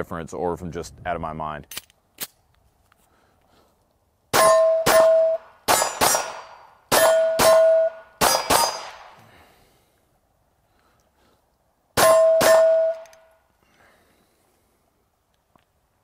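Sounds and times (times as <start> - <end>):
pistol shots: 4.3 - 9.2, 12.0 - 13.1
steel target clang: 4.3 - 9.2, 12.0 - 13.2.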